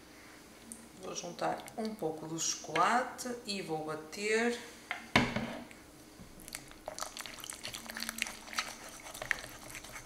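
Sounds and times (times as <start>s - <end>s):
whisk beating cream in a bowl: 7.0s - 10.0s.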